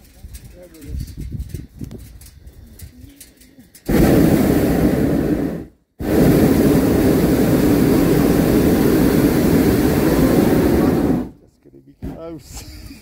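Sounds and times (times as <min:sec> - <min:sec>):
propane burner roaring: 0:03.8 - 0:11.4.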